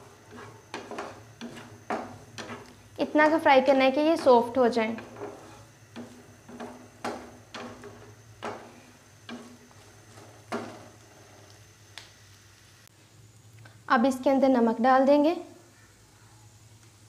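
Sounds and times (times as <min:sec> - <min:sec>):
spatula scraping frying pan: 0:00.0 - 0:11.6
steady low hum: 0:00.0 - 0:17.0.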